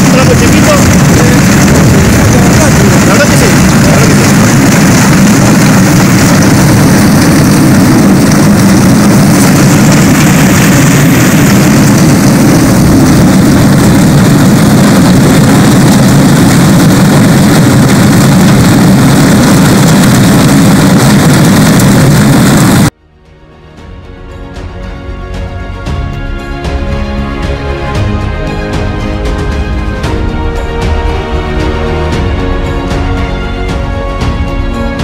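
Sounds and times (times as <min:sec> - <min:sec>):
small engine running: 0:00.0 - 0:22.9.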